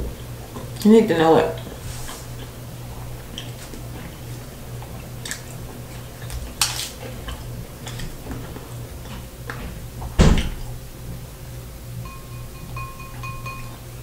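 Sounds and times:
low steady hum: 0.0 - 14.0
fried crust crunching: 3.2 - 8.3.

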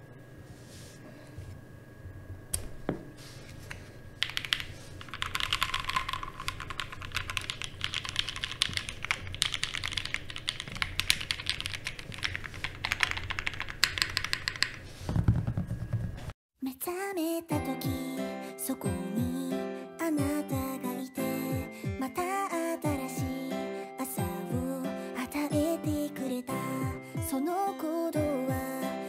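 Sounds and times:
mechanical keyboard typing: 4.2 - 14.8.

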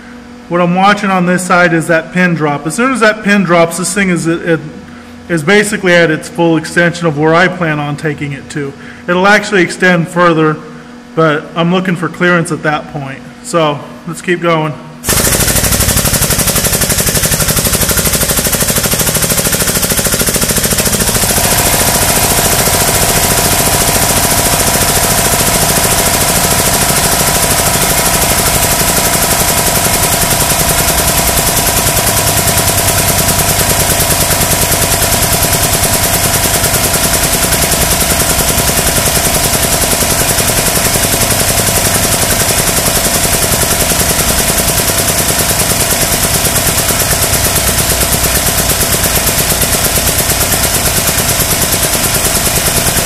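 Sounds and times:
air compressor whining: 0.0 - 53.0
air pump chattering: 15.0 - 53.0.

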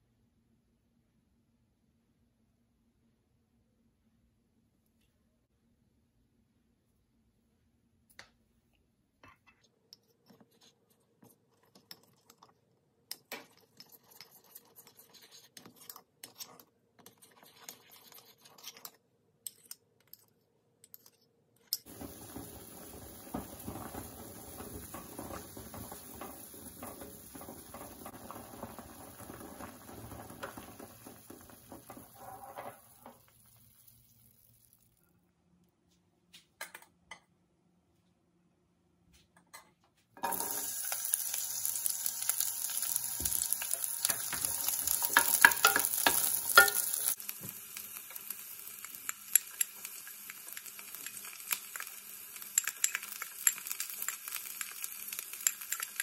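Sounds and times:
water boiling in a saucepan: 21.8 - 35.1, 40.2 - 56.0.

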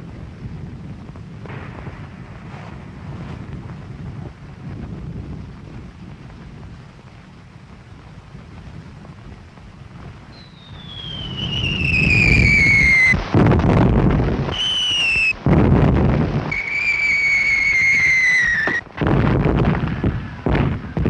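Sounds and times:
low rumble of gunfire: 0.2 - 12.0, 13.0 - 16.6, 18.5 - 21.0
artillery shells whistling: 10.3 - 15.5, 16.3 - 18.9.

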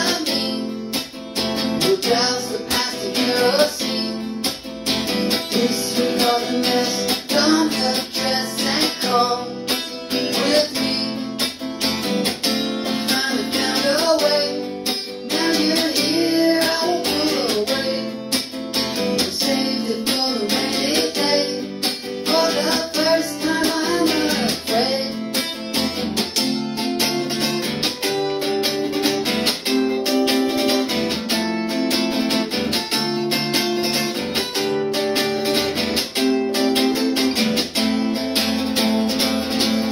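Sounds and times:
man singing: 0.0 - 1.0, 1.6 - 11.7, 12.8 - 25.6
guitar chords strummed: 0.0 - 39.9.

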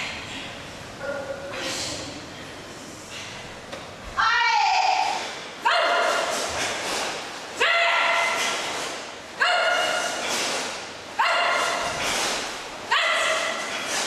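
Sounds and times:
people shouting kiai: 4.2 - 14.0.

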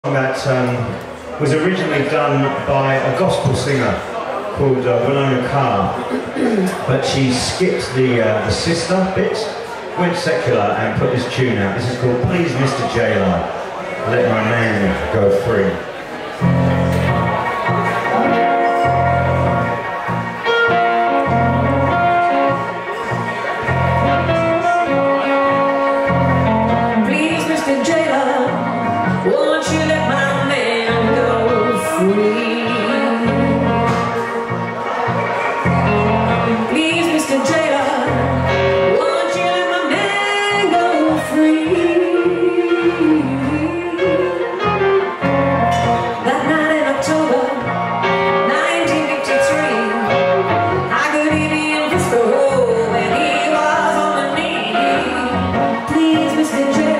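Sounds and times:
stage keyboard: 0.0 - 56.9
electric guitar playing blues: 16.2 - 56.9
bass notes: 16.3 - 56.9
person singing: 24.0 - 34.7, 35.6 - 56.9.

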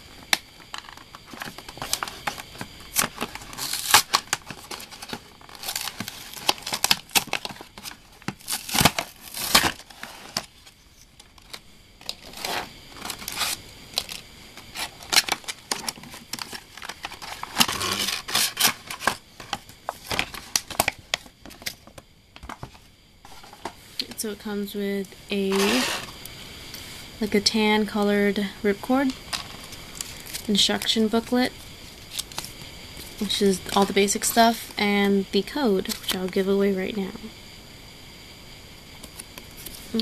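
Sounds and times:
plastic trays crinkling and clicking: 0.3 - 23.8
cardboard ripping: 1.3 - 10.6, 12.1 - 20.9, 25.5 - 26.1.

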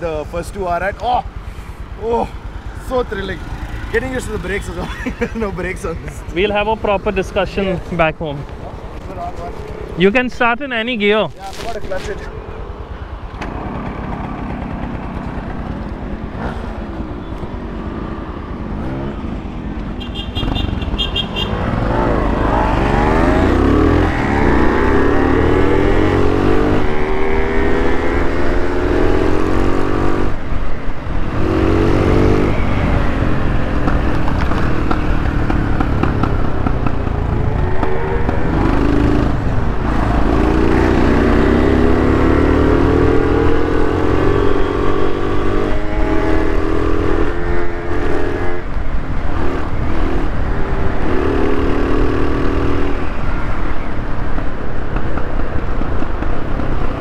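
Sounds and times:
two-stroke engine accelerating: 20.4 - 30.4, 31.2 - 48.7.

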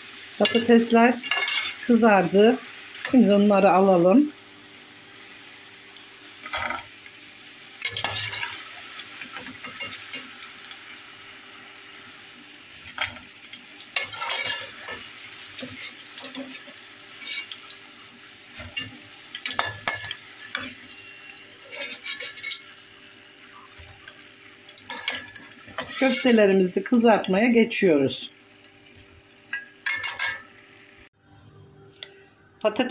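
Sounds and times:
fries sizzling in hot oil: 0.0 - 31.1
metal skimmer clinking on pot: 29.5 - 30.5.

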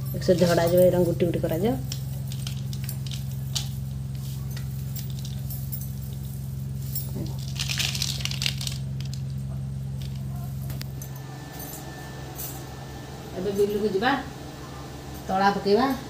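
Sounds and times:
low steady hum: 0.0 - 16.0
rice seeds rustling: 1.9 - 9.4.

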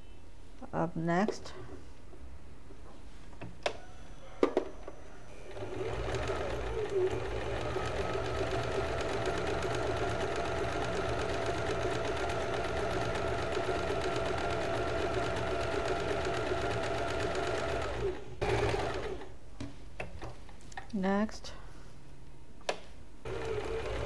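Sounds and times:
electric sewing machine running: 5.4 - 19.3, 23.3 - 24.0.

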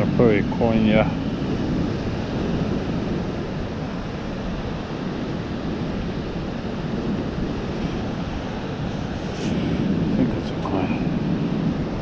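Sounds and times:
wind and surf rumble: 0.0 - 12.0.

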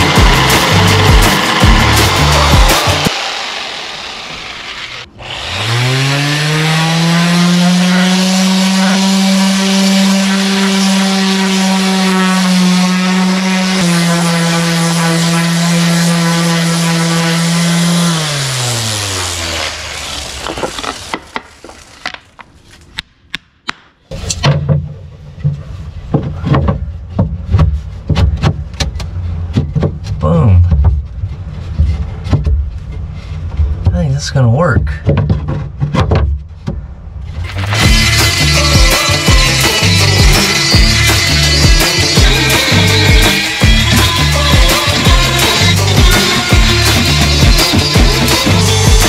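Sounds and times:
orbital sander running: 0.0 - 21.4, 37.7 - 49.0
wooden knocks and scrapes: 20.4 - 23.1, 24.1 - 34.2, 34.9 - 37.9.

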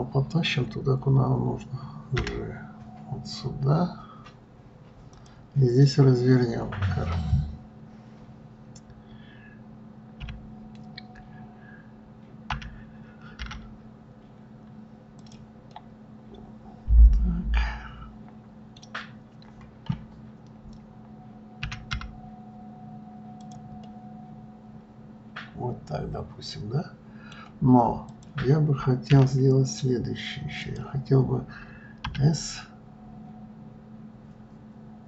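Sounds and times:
low hum: 5.2 - 14.2, 16.2 - 18.9
keyboard keystrokes: 10.2 - 11.2, 12.5 - 13.7, 21.6 - 22.2.

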